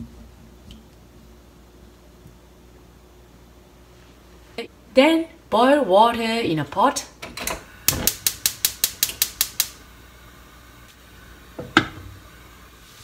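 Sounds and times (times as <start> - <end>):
gas igniter clicking rapidly: 7.4 - 9.8.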